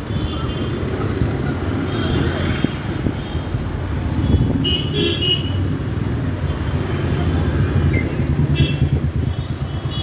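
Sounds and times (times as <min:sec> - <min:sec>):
city traffic: 0:00.0 - 0:10.0.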